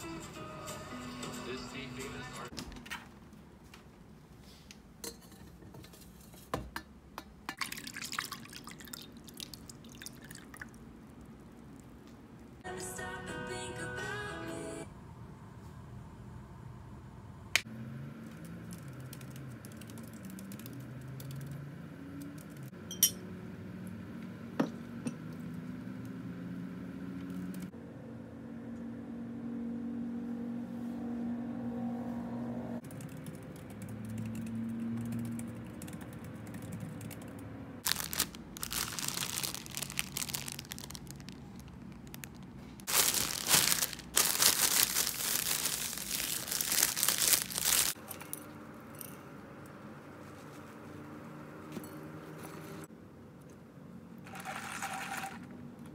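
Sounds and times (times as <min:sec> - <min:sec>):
packaging crinkling and rustling: 0:37.8 - 0:48.0.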